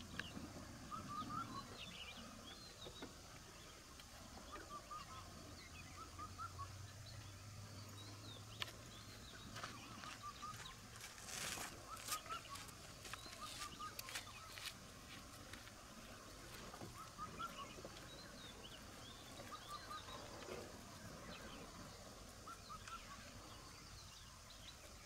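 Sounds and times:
faint high animal calls: 0.8 - 2.2, 4.4 - 7.0, 9.6 - 14.8, 16.5 - 20.6.

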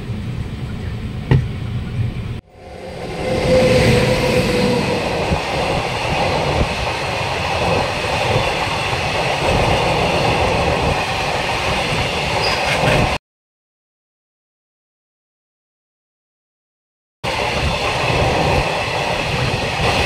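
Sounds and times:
train rumble and wheels on rails: 0.0 - 13.2, 17.2 - 20.0.

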